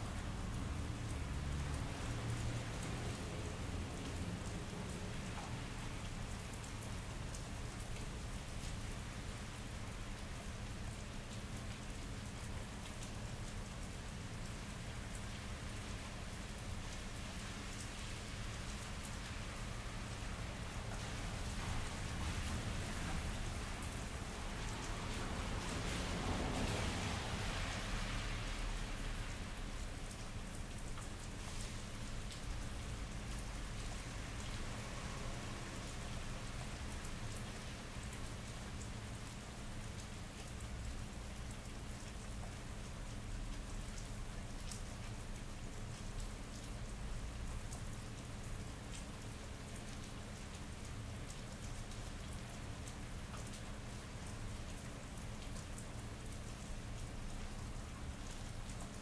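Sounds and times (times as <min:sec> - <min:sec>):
rain on wet pavement: 0:00.0 - 0:59.0
raindrops ticking: 0:28.8 - 0:59.0.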